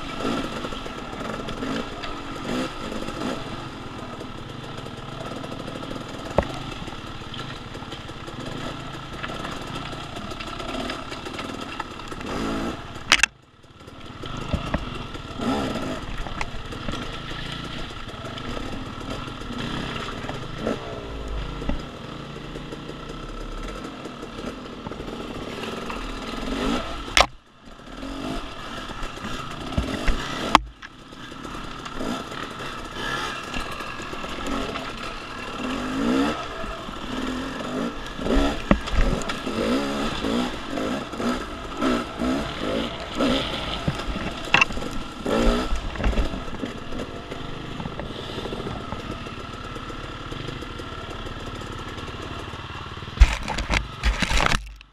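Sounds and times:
dirt bike engine revving: 0.0s - 54.4s.

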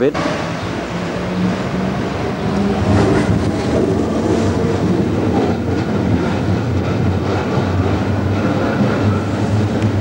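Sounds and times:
train wheels clattering on rails: 0.2s - 10.0s.

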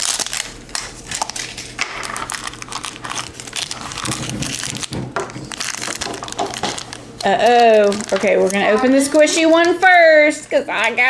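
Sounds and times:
plastic wrap crinkling: 0.0s - 10.9s.

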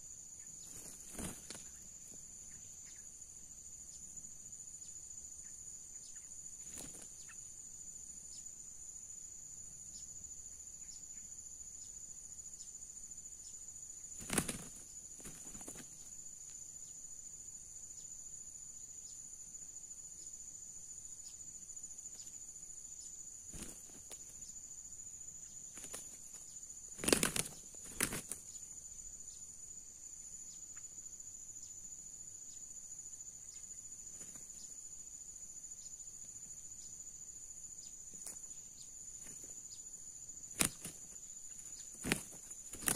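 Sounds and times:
insects droning: 0.0s - 42.9s
rooster wings flapping: 0.7s - 1.8s, 14.2s - 16.0s, 23.5s - 24.3s, 25.7s - 26.4s, 27.0s - 28.4s, 40.5s - 41.2s, 41.9s - 42.9s.

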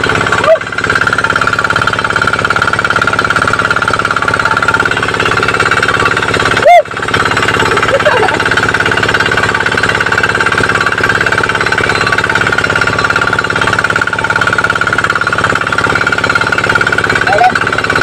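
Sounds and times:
diesel engine knocking: 0.0s - 18.0s
steady high tone: 9.3s - 18.0s.

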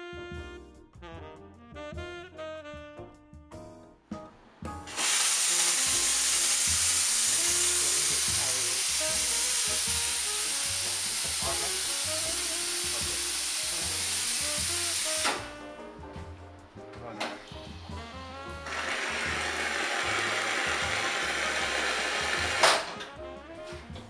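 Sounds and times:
espresso steam wand hissing: 4.9s - 15.5s, 18.6s - 22.9s.

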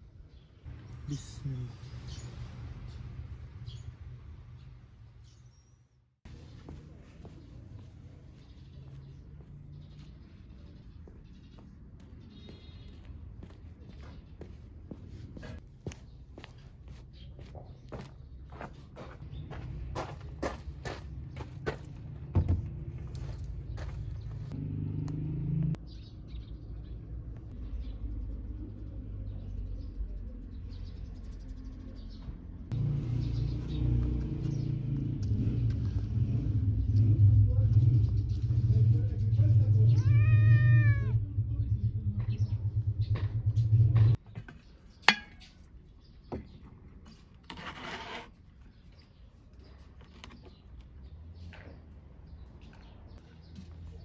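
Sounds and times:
small birds chirping: 0.0s - 24.6s, 25.6s - 47.5s, 48.4s - 54.0s
low outdoor rumble: 32.5s - 44.2s
low hum: 41.0s - 44.2s
rustling scrape: 47.4s - 48.4s.

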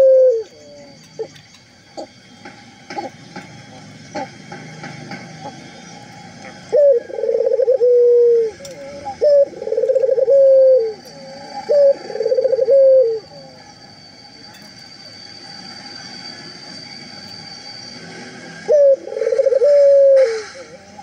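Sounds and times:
dove cooing: 0.0s - 1.4s, 6.6s - 13.3s, 18.7s - 20.8s
faint high whine: 0.0s - 21.0s.

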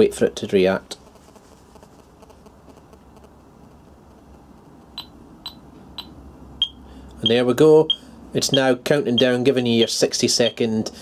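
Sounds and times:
alarm panel beeping: 5.0s - 10.6s.

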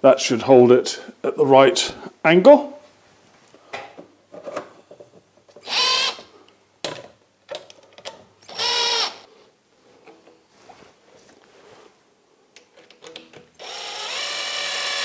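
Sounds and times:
cordless drill running: 5.6s - 6.2s, 8.5s - 9.3s, 13.6s - 15.0s.

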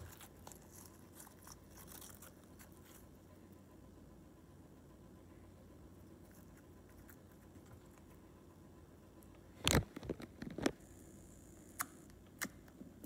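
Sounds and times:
slime squishing: 0.0s - 3.2s.

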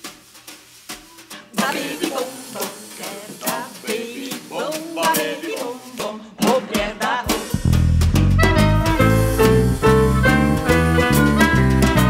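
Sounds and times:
drum and cymbal strikes: 0.0s - 12.0s
music with strong bass line: 7.4s - 12.0s.

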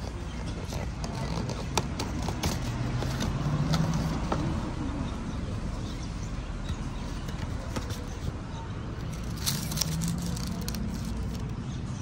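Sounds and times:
cardboard box ticks and rustles: 0.0s - 4.5s, 9.0s - 11.6s.

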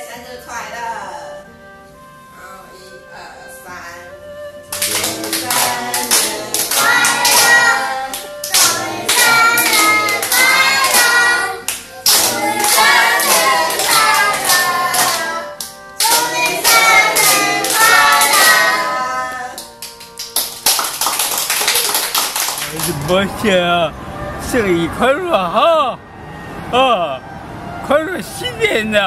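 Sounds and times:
group singing birthday song: 4.7s - 19.8s
hands clapping in time: 4.7s - 23.1s.

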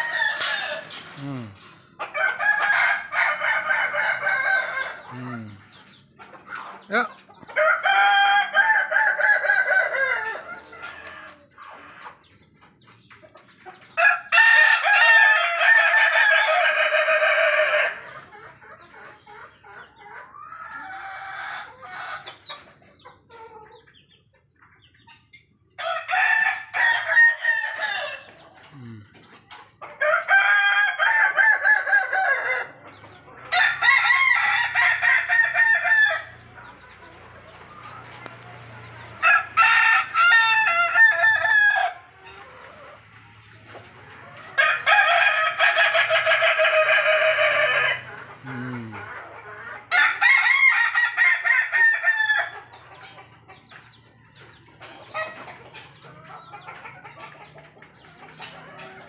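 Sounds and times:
roosters crowing: 0.0s - 5.8s, 6.5s - 11.9s, 13.9s - 18.3s, 25.8s - 29.1s, 29.9s - 56.6s.

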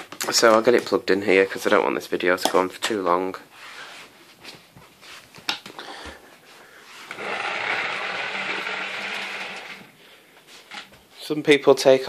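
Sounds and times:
cable pulled from cord reel: 7.1s - 10.0s.

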